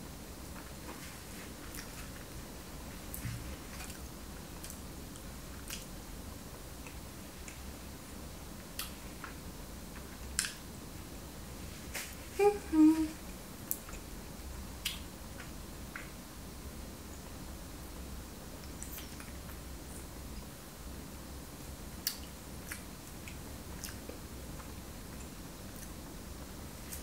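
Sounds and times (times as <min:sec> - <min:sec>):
person humming mmm: 0:12.4 - 0:13.2
wet lip smacks and mouth clicks: 0:22.0 - 0:24.0.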